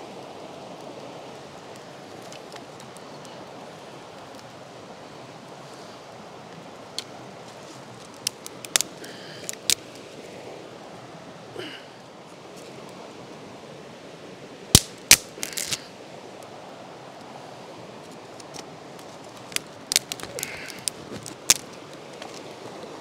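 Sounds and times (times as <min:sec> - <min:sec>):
faint steady hiss: 0:00.0 - 0:23.0
sticks cracking in campfire: 0:08.0 - 0:10.0, 0:14.7 - 0:15.9, 0:18.1 - 0:22.5.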